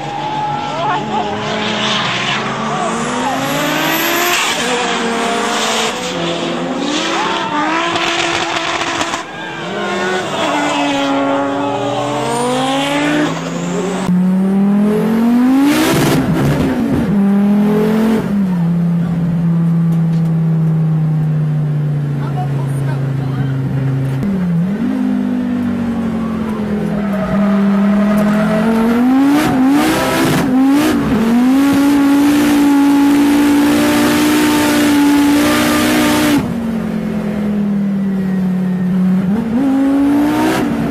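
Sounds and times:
car engine revving: 0.0s - 40.9s
tyre squeal: 7.0s - 12.2s, 26.1s - 29.0s.

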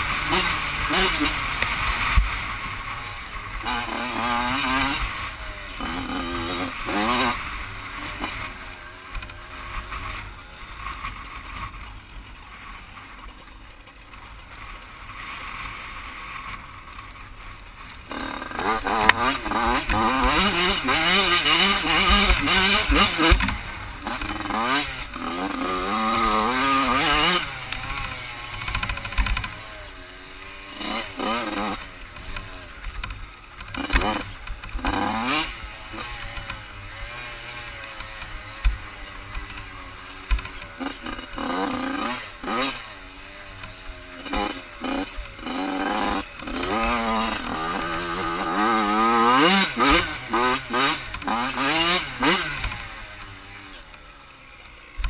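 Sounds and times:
dirt bike engine revving: 0.0s - 11.8s, 18.0s - 55.0s.

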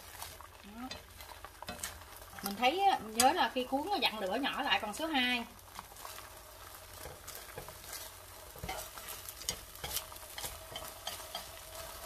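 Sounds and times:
oil sizzling in a pan: 0.0s - 12.0s
utensils tapping and scraping a pan: 0.0s - 12.0s.

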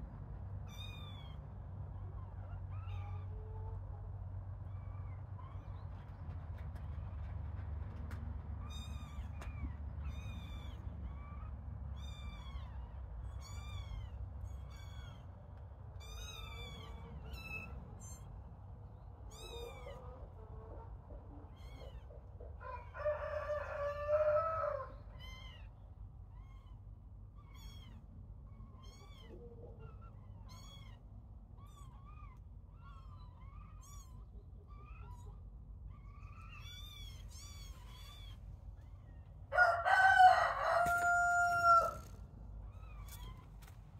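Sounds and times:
kittens mewing: 8.6s - 18.6s, 19.2s - 22.9s, 24.8s - 40.0s, 40.7s - 43.8s.

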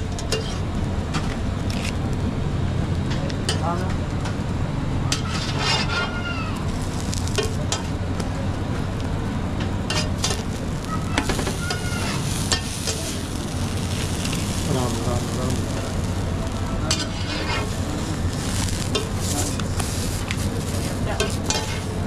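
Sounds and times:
food sizzling on griddle: 0.0s - 2.3s, 5.0s - 8.4s, 9.8s - 22.0s
steady low hum: 6.5s - 22.0s.

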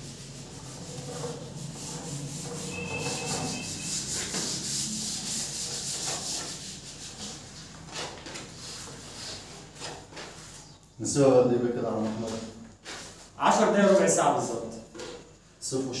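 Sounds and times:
scratchy rubbing on a surface: 0.0s - 10.7s.

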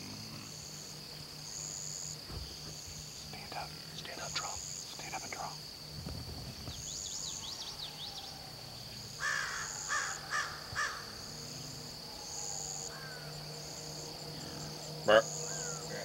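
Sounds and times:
high drone of insects: 0.0s - 16.0s
rising and falling bird chirps: 6.6s - 16.0s
harsh caw-like bird calls: 7.2s - 11.4s, 12.3s - 16.0s.

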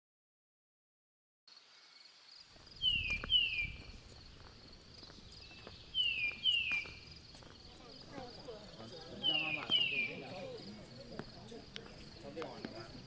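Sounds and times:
insects trilling: 1.5s - 13.0s
bird whistling falling notes: 2.8s - 3.9s, 5.5s - 7.0s.

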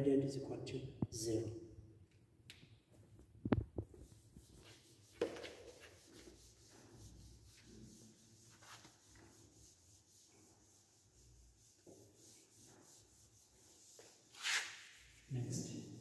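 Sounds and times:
duster rubbing on whiteboard: 3.8s - 16.0s.

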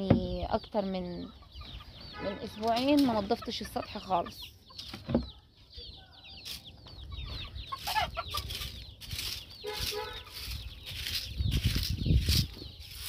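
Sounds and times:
chicks peeping: 0.0s - 13.0s
hens clucking: 0.4s - 13.0s.

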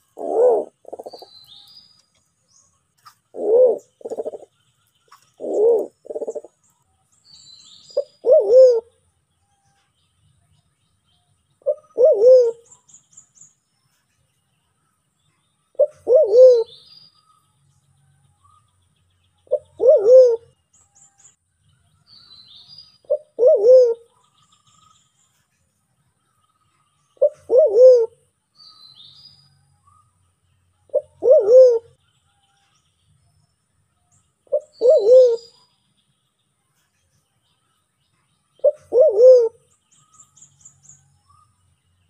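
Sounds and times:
pigeon cooing: 0.0s - 1.3s, 3.3s - 4.5s, 5.4s - 6.6s, 8.0s - 8.9s, 11.6s - 12.7s, 15.8s - 16.7s, 19.5s - 20.5s, 23.1s - 24.1s, 27.2s - 28.2s, 30.9s - 32.0s, 34.5s - 35.5s, 38.6s - 39.6s
small birds chirping: 0.0s - 42.0s.

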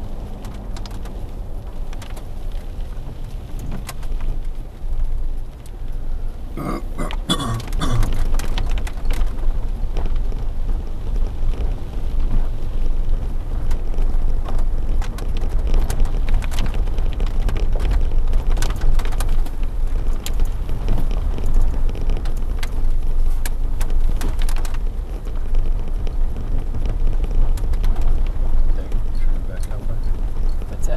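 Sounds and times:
gravel ticks and crackles: 0.0s - 30.9s
vehicle rumbling slowly: 0.0s - 30.9s.

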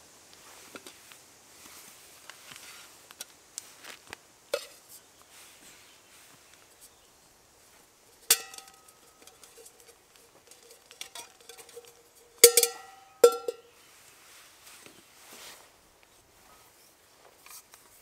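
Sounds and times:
metal pot clanking on steel stove: 4.6s - 4.8s, 8.2s - 13.6s.

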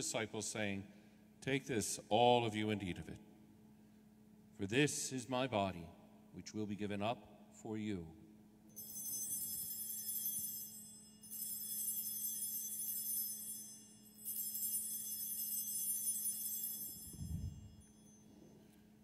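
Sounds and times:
altar bells ringing: 8.7s - 19.0s.

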